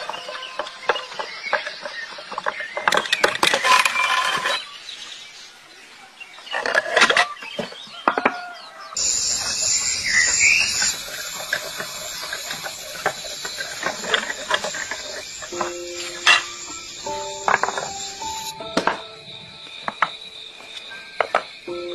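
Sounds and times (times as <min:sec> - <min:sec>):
wooden reel clattering: 0:00.0 - 0:04.7
steady high hiss: 0:09.0 - 0:21.9.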